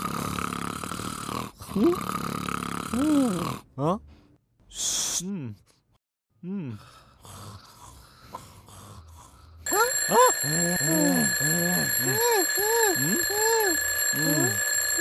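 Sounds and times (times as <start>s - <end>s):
alarm clock ringing: 9.7s - 15.0s.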